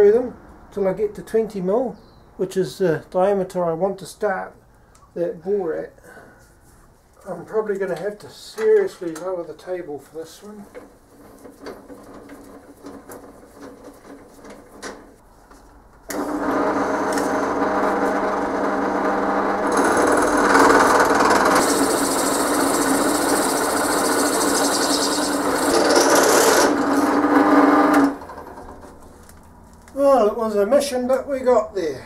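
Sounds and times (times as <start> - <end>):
drill press humming: 16.1 - 29.1
drill bit cutting metal: 16.2 - 28.1.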